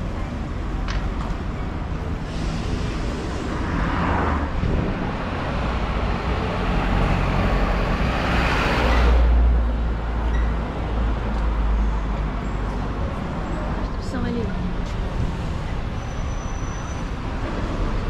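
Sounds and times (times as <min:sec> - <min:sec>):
street traffic: 0:00.0 - 0:18.0
vehicle passing: 0:02.0 - 0:09.5.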